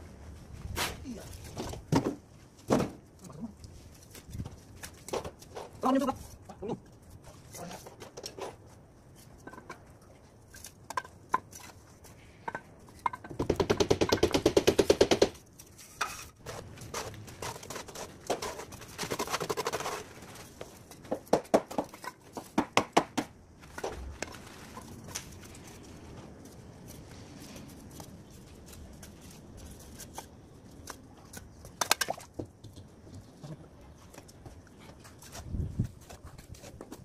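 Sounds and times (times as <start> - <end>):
knocks and taps of bricks and mortar: 9.4 - 16.6, 20.6 - 24.4, 30.0 - 37.0.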